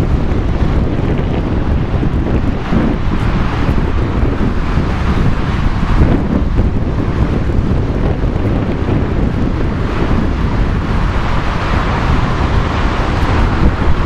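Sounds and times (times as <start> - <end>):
jet engines roaring: 0.0 - 14.0
wind buffeting microphone: 0.0 - 14.0.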